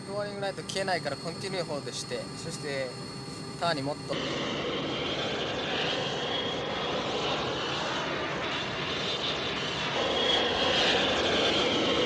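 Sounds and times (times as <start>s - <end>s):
jet engine roar with whine: 0.0s - 12.0s.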